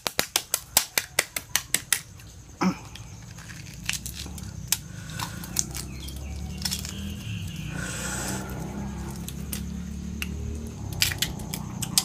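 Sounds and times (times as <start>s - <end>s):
faint shell cracks: 0.0s - 2.2s, 2.8s - 7.0s.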